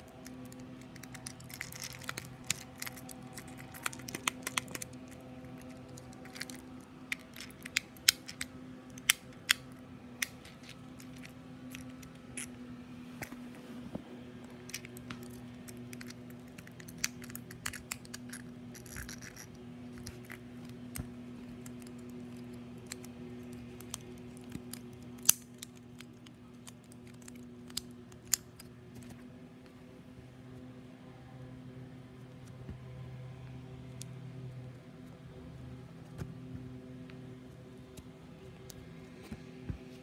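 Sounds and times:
fidget cube clicking: 0.0 - 12.4
steady low hum: 0.0 - 40.0.

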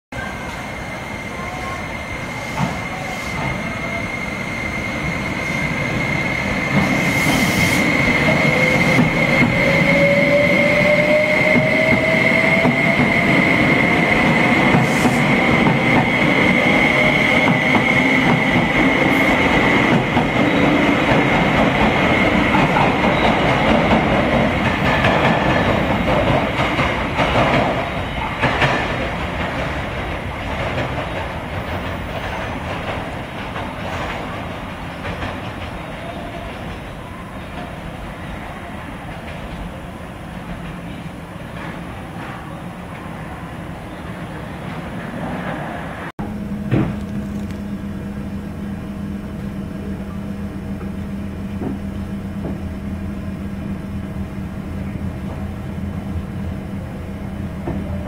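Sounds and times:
high-pitched squeal: 0.2 - 21.4
train wheel-and-rail rumble: 0.2 - 58.0.

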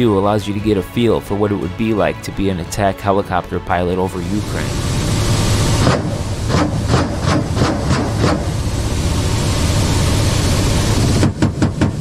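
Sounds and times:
loud hiss: 4.2 - 11.2
sharp knocks: 11.2 - 12.0.

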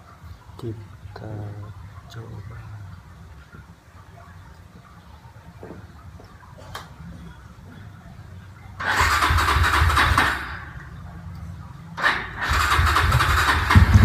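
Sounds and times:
motorcycle engine starting: 8.8 - 10.8, 12.0 - 14.0.

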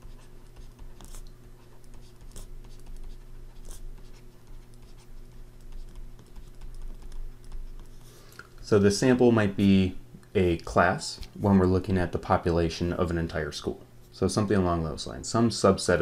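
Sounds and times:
steady low hum: 0.0 - 16.0.

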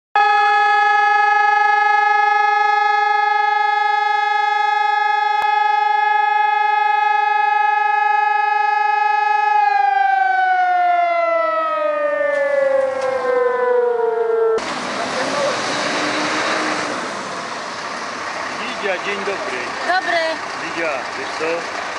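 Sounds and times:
siren winding down: 0.2 - 17.4.

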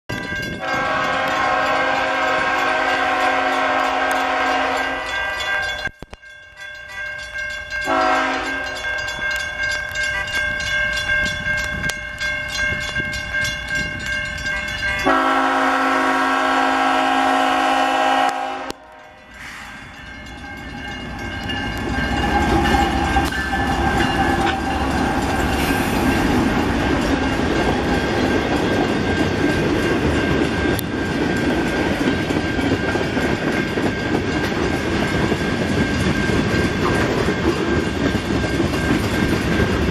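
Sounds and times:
locomotive engines and wheels rumbling: 0.1 - 39.9
locomotive air horn blasts: 0.6 - 5.6, 7.9 - 8.8, 15.0 - 20.0, 22.1 - 26.1.

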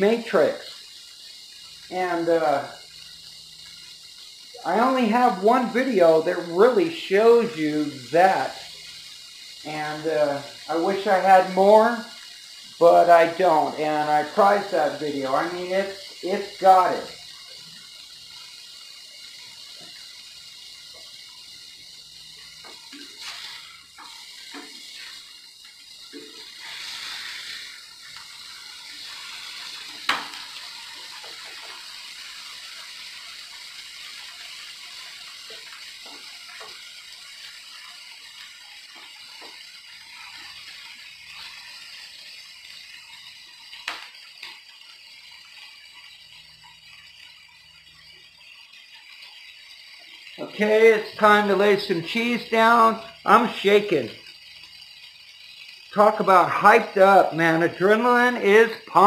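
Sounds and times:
patties sizzling in a skillet: 0.0 - 59.0.

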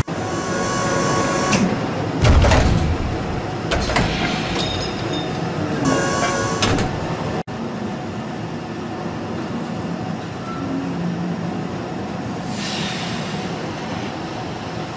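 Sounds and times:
machinery clatter and whine: 0.0 - 12.5
heavy thud: 2.2 - 3.4.

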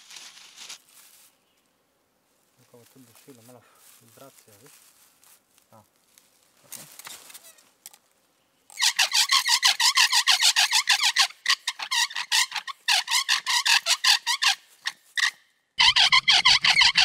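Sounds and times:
bow drill spindle squeaking: 8.7 - 17.0.

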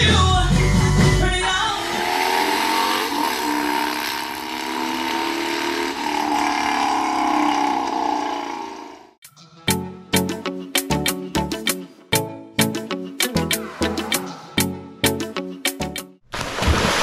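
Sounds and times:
motorcycle engine revving: 1.4 - 9.2.

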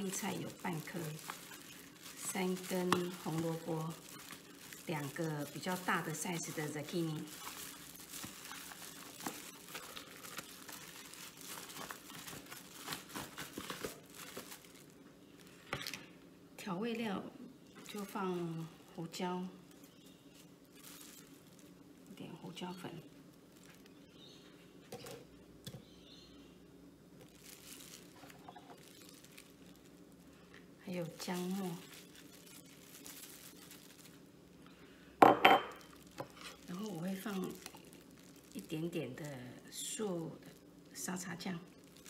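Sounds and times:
soft rustling: 0.0 - 15.6
plastic packaging crinkling: 0.0 - 16.1, 19.3 - 25.8, 27.2 - 42.0
low steady hum: 0.0 - 42.0.

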